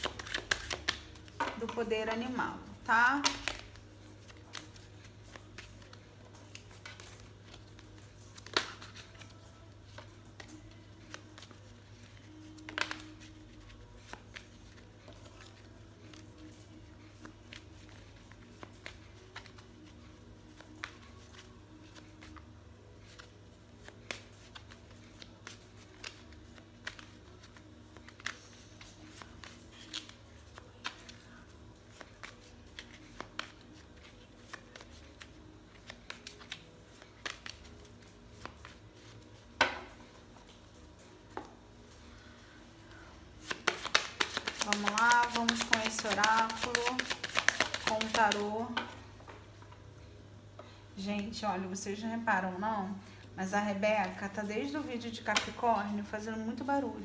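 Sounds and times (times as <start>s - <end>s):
cards shuffling: 0.0s - 1.9s, 3.2s - 40.6s, 43.4s - 48.9s.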